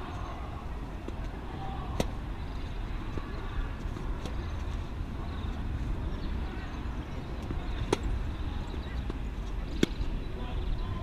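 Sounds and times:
tennis ball struck with racket: 0:01.0 - 0:02.2, 0:07.5 - 0:08.1, 0:09.7 - 0:10.0.

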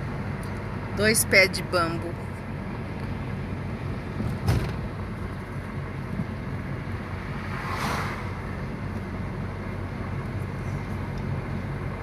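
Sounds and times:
car engine and tyre drone: 0:02.2 - 0:12.0
sharp thump: 0:04.2 - 0:04.9
rushing noise: 0:07.1 - 0:08.8.

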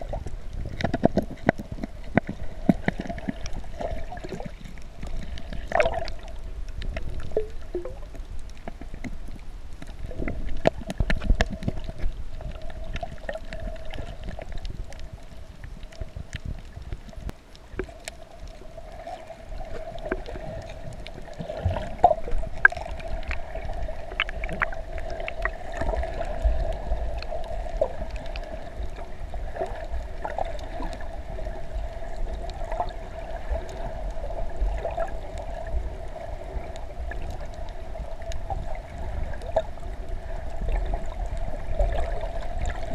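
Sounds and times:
sharp clicks and crackles: 0:00.0 - 0:42.9
water bubbling underwater: 0:00.0 - 0:42.9.

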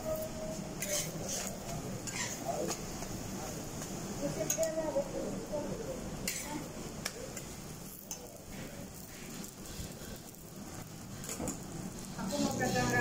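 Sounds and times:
food sizzling on a griddle: 0:00.0 - 0:13.0
metal spatula clicking on griddle: 0:00.8 - 0:02.8, 0:04.5 - 0:04.8, 0:06.2 - 0:08.4.

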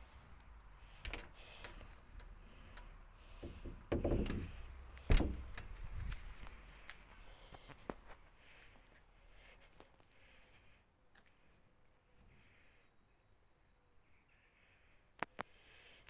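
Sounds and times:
door knob and latch clicks: 0:01.0 - 0:02.3, 0:03.4 - 0:06.1
door knocking: 0:03.4 - 0:05.4.

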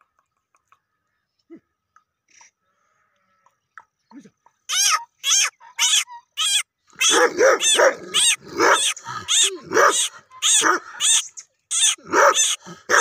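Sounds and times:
dog barking rapidly: 0:07.0 - 0:13.0.

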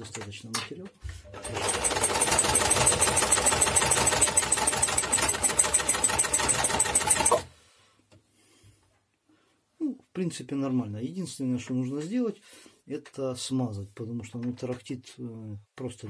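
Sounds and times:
sewing machine rattling: 0:01.3 - 0:07.5.

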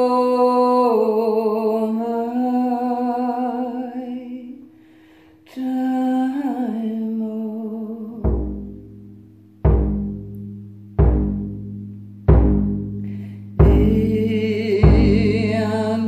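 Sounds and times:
frame drum strike: 0:08.2 - 0:15.8.

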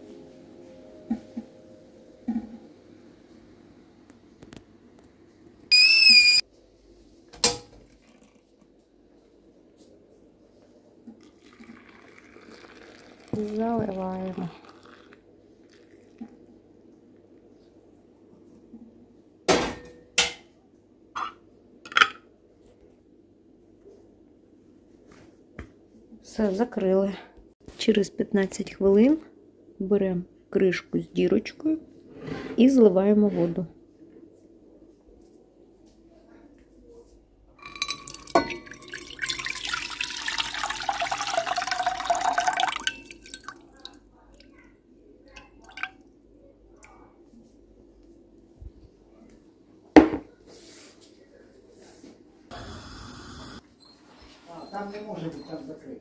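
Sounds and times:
water pouring into metal pot: 0:11.2 - 0:16.2, 0:37.8 - 0:44.4, 0:45.4 - 0:46.0
water dripping: 0:37.9 - 0:44.6, 0:45.3 - 0:46.1.

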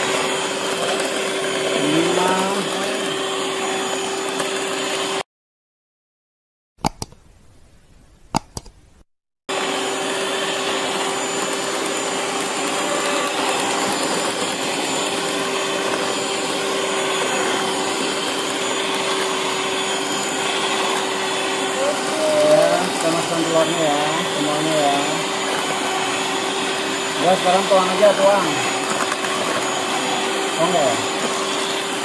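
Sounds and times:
electric hand mixer running: 0:00.0 - 0:05.3, 0:09.5 - 0:32.0
sharp clicks: 0:06.8 - 0:07.3, 0:08.3 - 0:08.8.

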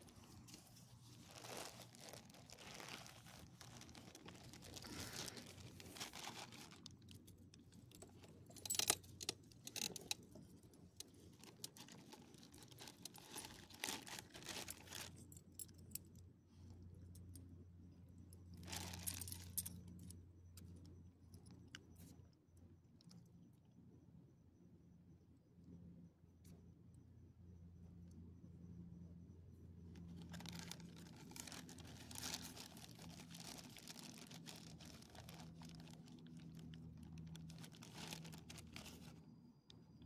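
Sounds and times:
clicks and rustles: 0:00.0 - 0:15.9, 0:30.0 - 0:39.2.

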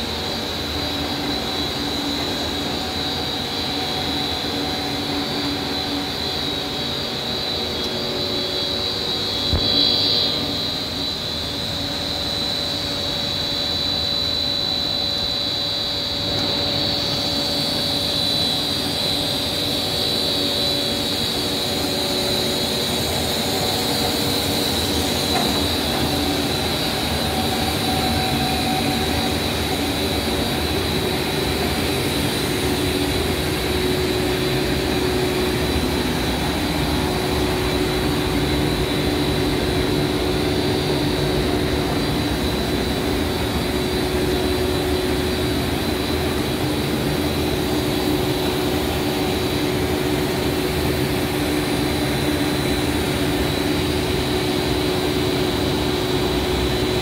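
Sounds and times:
high machine whine: 0:00.0 - 0:57.0
pipe extrusion machine drone: 0:00.0 - 0:57.0.

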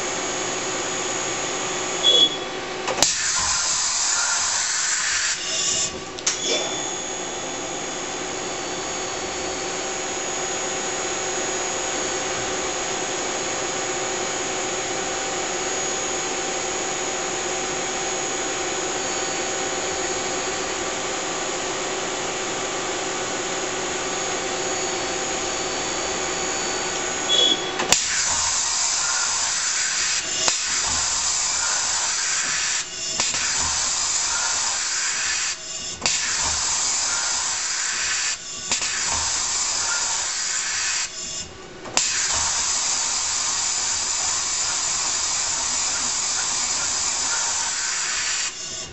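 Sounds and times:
lathe motor whine: 0:00.0 - 0:48.9
hiss: 0:03.0 - 0:05.9, 0:27.9 - 0:48.9.

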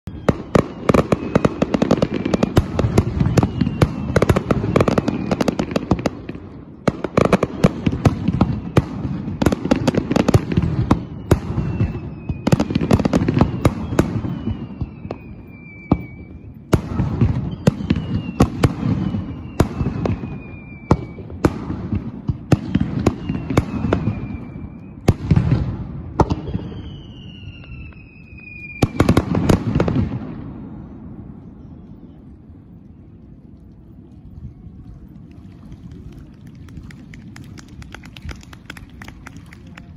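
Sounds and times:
falling firework whistles: 0:00.1 - 0:06.1, 0:07.1 - 0:32.0.

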